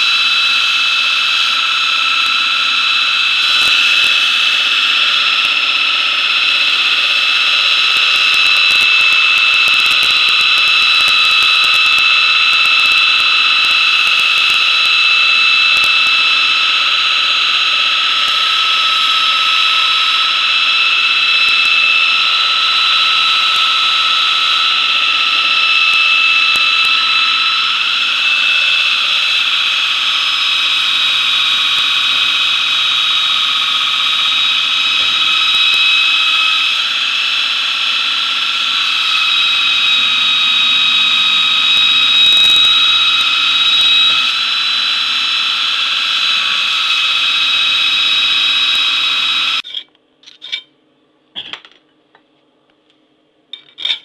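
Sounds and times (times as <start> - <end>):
belt grinder grinding blade: 0.0 - 50.7, 53.6 - 54.0.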